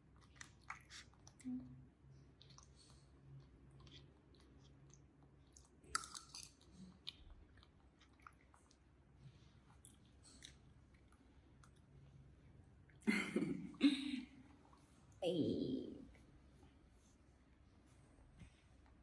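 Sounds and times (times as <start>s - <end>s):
chewing clicks: 0.2s - 1.5s, 2.4s - 8.8s.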